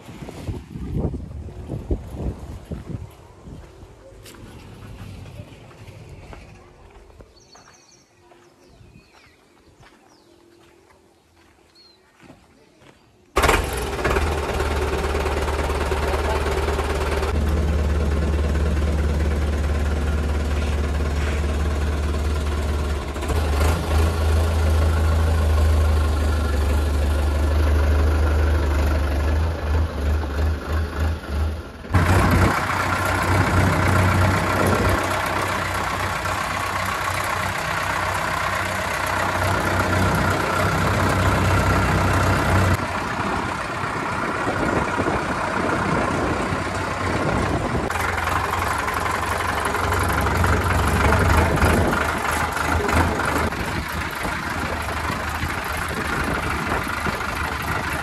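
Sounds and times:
tractor diesel engine running: 13.4 - 58.0.

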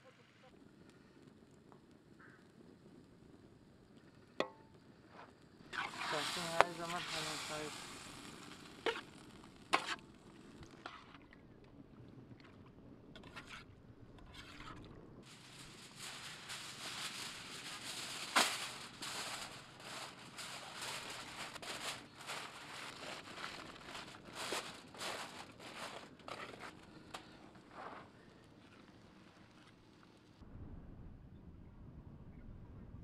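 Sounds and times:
aluminium foil crinkling: 5.8 - 11.0, 15.2 - 29.5.

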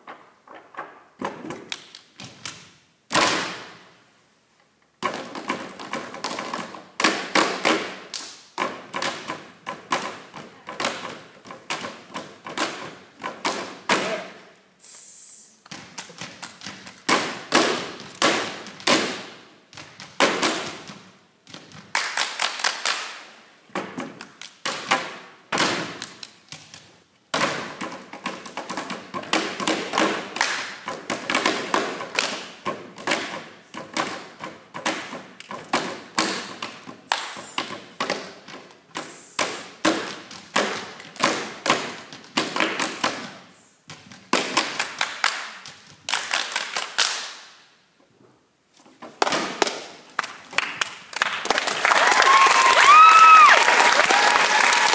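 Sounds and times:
hand percussion slaps and claps: 21.9 - 23.3, 29.9 - 30.9, 37.1 - 37.6, 44.3 - 47.5.

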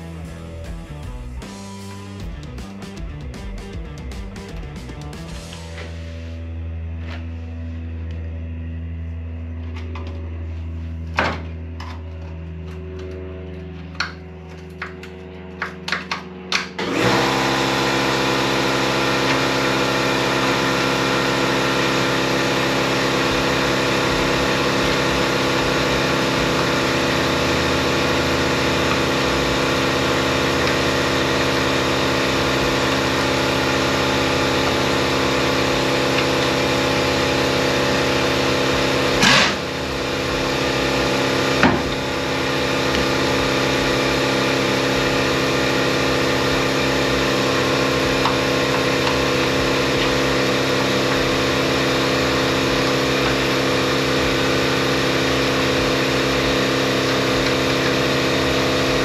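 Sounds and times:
motor humming: 7.0 - 59.0.

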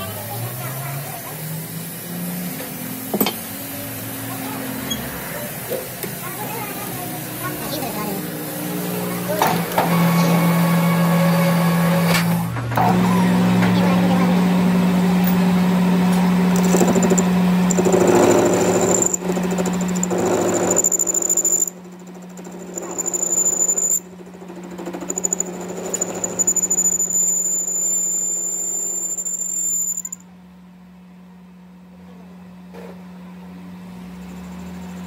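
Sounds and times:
cutting tool squealing on metal: 4.8 - 5.1, 16.5 - 24.0, 25.0 - 30.2
lathe humming: 14.3 - 30.2.

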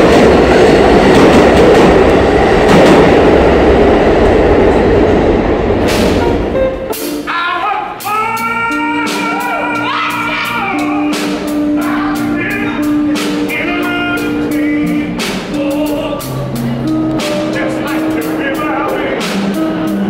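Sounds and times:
electric guitar melody: 5.8 - 7.3, 7.9 - 20.0
snare drum and cymbal hits: 5.9 - 6.3.

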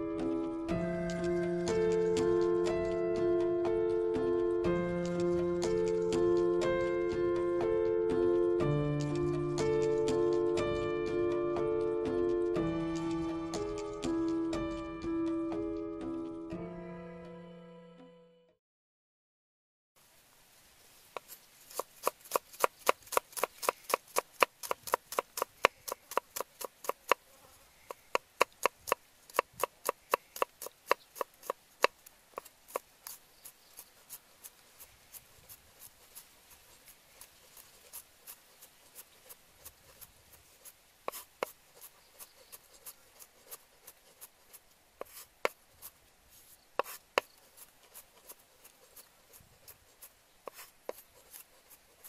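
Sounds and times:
knife chopping on wooden board: 21.2 - 27.2, 27.9 - 33.2, 41.1 - 41.9, 46.8 - 48.4, 50.5 - 51.8.

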